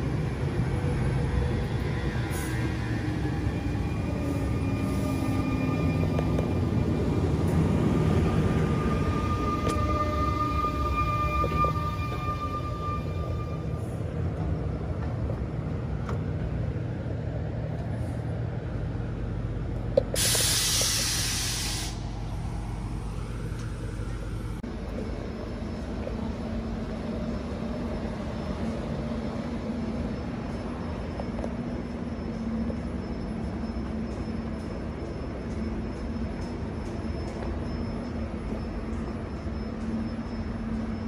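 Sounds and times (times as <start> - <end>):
electric train equipment humming: 0.0 - 20.0
compressed air hissing from brakes: 20.1 - 22.2.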